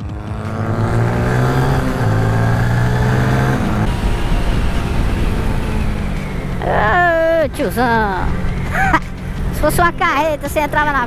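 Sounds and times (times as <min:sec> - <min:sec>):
motorcycle engine accelerating: 0:00.0 - 0:11.0
wind rush: 0:02.0 - 0:10.6.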